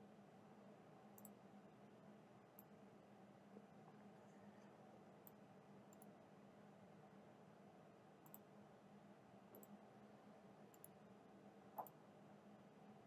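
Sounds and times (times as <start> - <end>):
computer mouse clicks: 1.2 - 1.4, 5.2 - 6.2, 8.2 - 8.5, 9.5 - 9.8, 10.7 - 11.0, 11.8 - 12.0.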